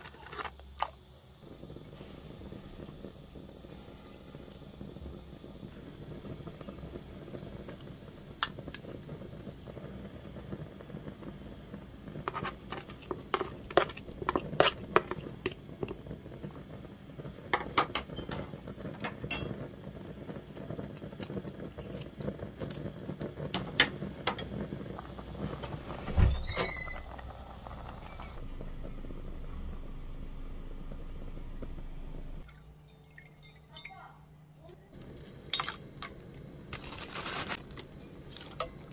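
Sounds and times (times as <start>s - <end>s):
soup bubbling: 4.7s - 29.2s
heavy thump with squeak: 26.0s - 27.1s.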